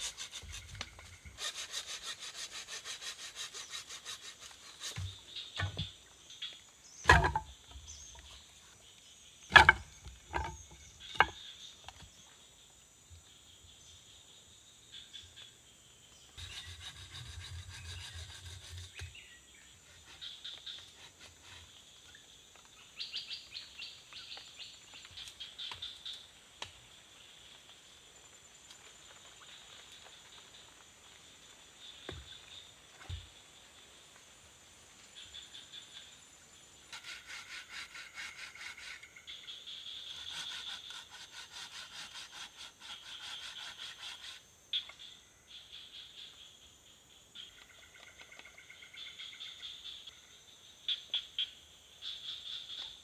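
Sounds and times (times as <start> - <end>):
rubbing and handling bamboo: 0.0 - 6.1, 7.0 - 8.5, 9.5 - 12.1, 16.4 - 19.2, 36.9 - 39.1, 40.0 - 44.4
forest insects buzzing: 0.0 - 53.0
bamboo knocks: 5.0 - 6.0, 7.0 - 7.8, 9.5 - 11.4.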